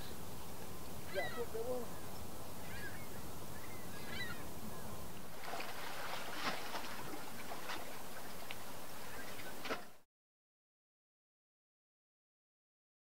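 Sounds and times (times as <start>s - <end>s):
bird calls: 0.0s - 5.1s, 6.3s - 9.9s
wind: 0.0s - 10.1s
water splashing: 5.2s - 10.0s.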